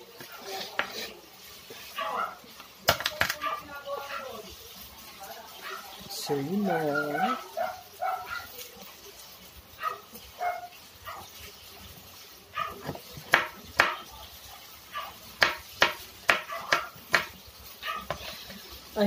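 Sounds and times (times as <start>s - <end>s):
knife chopping on cutting board: 12.8s - 14.0s, 15.4s - 17.4s.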